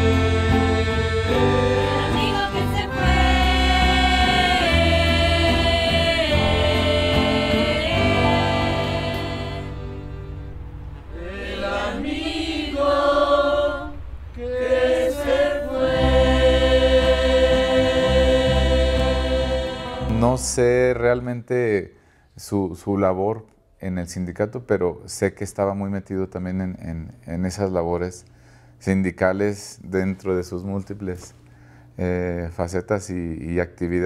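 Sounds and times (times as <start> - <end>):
group of young voices singing: 0.0 - 10.1, 11.0 - 20.5
electric bass: 0.0 - 11.2, 15.8 - 21.3
acoustic guitars: 0.0 - 11.4
accordion: 0.0 - 14.0, 14.6 - 20.6.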